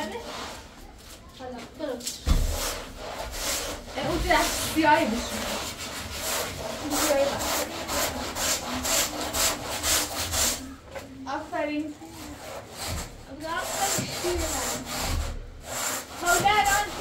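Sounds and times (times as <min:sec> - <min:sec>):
stiff broom scraping a rough wall: 0:02.2 - 0:10.7, 0:12.1 - 0:17.0.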